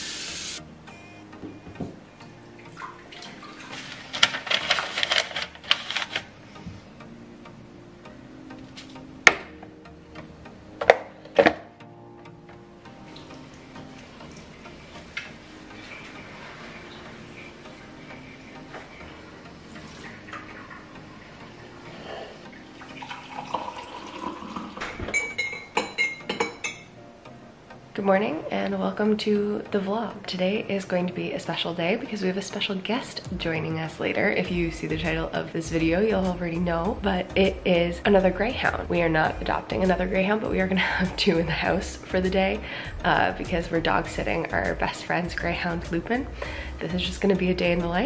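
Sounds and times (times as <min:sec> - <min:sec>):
paper coffee filter crinkling: 0:03.7 - 0:06.3
coffee pouring into a mug: 0:22.9 - 0:24.8
metal spoon clinking against mug: 0:25.2 - 0:26.9.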